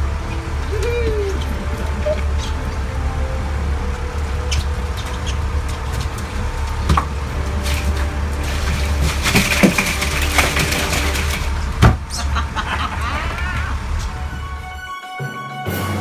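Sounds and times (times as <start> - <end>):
boat engine idling: 0.0 - 14.6.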